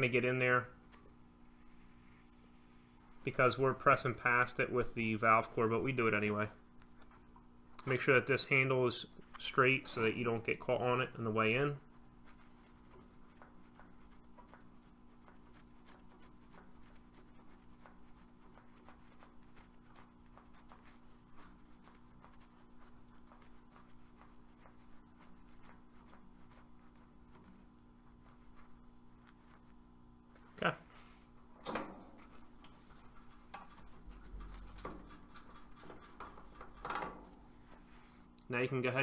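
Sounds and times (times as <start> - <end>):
faint steady hum: 0.0 - 39.0
tool ticks and scrapes: 32.2 - 37.8.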